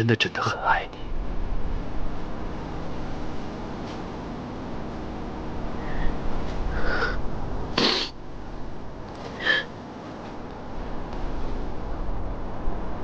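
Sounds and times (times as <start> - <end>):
steady background hiss: 0.0 - 13.0
person crying and sniffling: 6.7 - 7.2, 7.8 - 8.1, 9.4 - 9.7.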